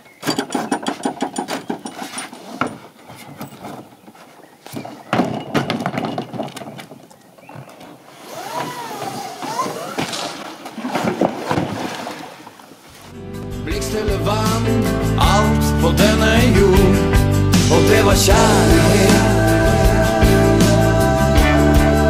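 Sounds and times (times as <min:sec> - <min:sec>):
indistinct voices: 0:17.6 - 0:22.0.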